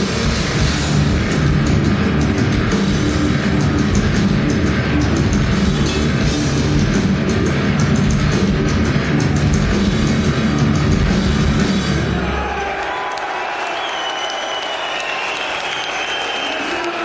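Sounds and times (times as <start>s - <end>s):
distorted electric guitars: 0.0s - 12.4s
bass guitar: 0.0s - 12.5s
drums: 0.0s - 17.0s.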